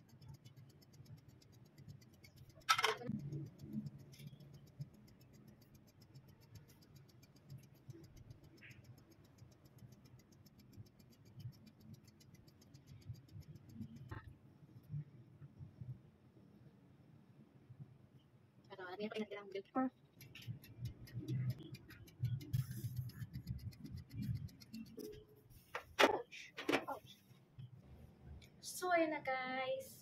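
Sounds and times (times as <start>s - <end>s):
oven timer ticking: 0.0s - 14.2s, 20.1s - 25.2s.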